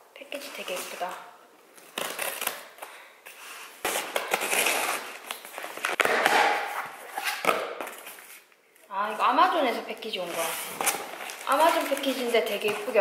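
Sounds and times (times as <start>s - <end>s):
tape ripping off cardboard: 1.8s - 2.8s, 3.8s - 8.4s.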